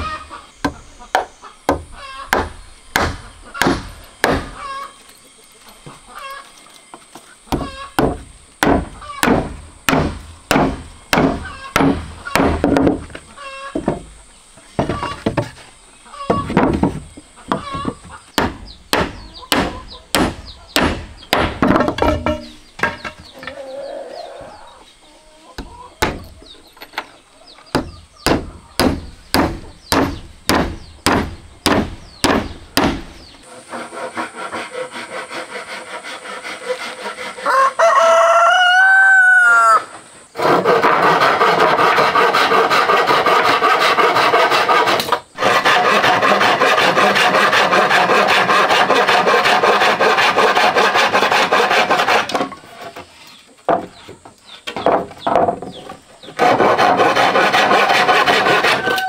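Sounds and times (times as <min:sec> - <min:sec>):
hand saw cutting wood: 0:33.4 - 0:37.6, 0:40.4 - 0:53.1, 0:56.3 - 0:59.0
rooster crowing: 0:37.4 - 0:40.0, 0:58.6 - 0:59.0.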